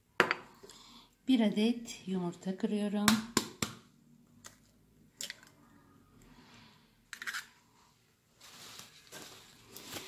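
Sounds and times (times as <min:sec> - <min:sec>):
soft rustling: 0:07.7 - 0:10.0.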